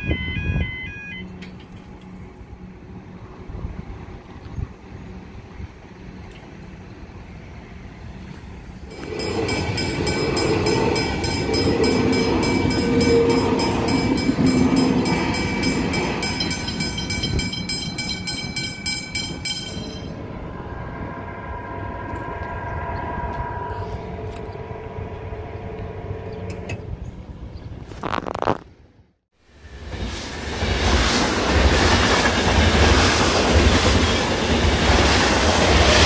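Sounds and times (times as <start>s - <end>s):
crossing warning bell ringing: 0.0s - 1.5s, 8.9s - 26.7s
electric train passing: 0.0s - 27.5s, 29.4s - 36.0s.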